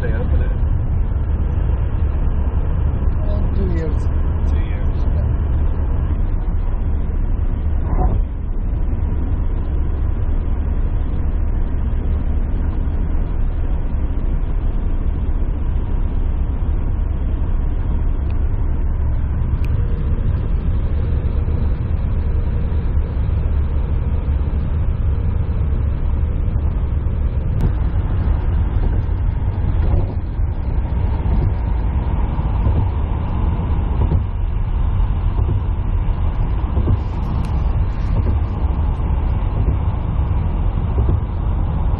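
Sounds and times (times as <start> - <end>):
car cabin road rumble: 0.0 - 41.9.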